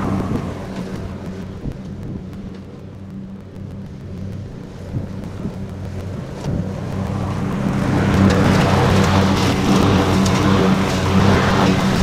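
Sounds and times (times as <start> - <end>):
lawn tractor engine running: 0.0 - 12.0
mower deck cutting grass: 6.3 - 12.0.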